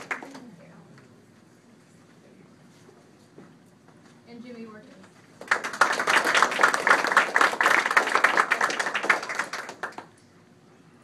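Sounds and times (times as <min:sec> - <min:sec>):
small audience clapping: 0:00.0 - 0:00.8, 0:05.3 - 0:10.4.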